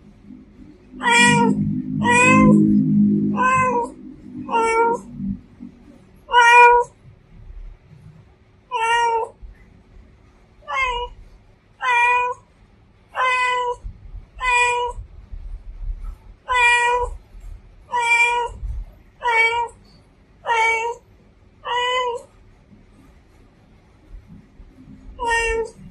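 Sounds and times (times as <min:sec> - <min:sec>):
cat meowing: 0:00.9 - 0:05.2, 0:06.3 - 0:07.0, 0:08.7 - 0:09.4, 0:10.6 - 0:11.2, 0:11.8 - 0:12.4, 0:13.2 - 0:15.0, 0:16.4 - 0:17.2, 0:17.9 - 0:18.6, 0:19.2 - 0:19.8, 0:20.4 - 0:21.0, 0:21.6 - 0:22.3, 0:25.2 - 0:25.9.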